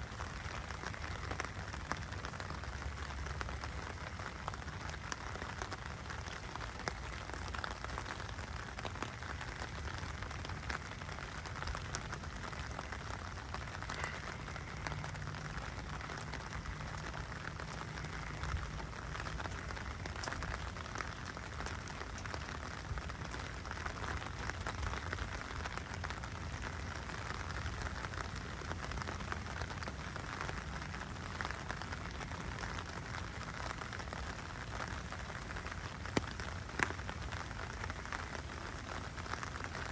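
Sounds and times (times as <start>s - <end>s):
rain falling on a wet street: 0.0s - 39.9s.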